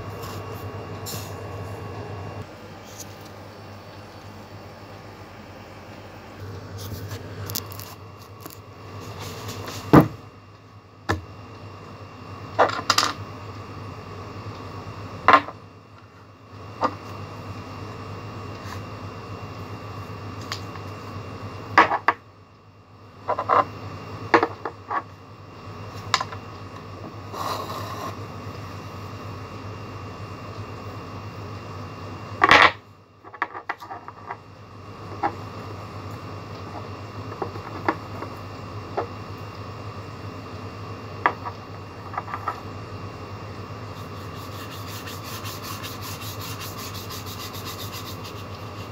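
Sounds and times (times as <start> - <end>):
steady low hum: 0.0 - 48.9
knocks on wooden table: 9.9 - 10.2.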